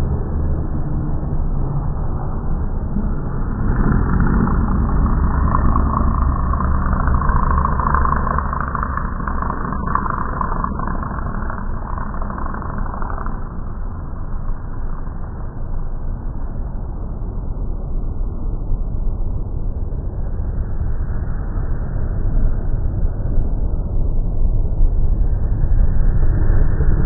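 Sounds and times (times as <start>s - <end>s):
distant race car engines rumbling: 2.2s - 14.8s.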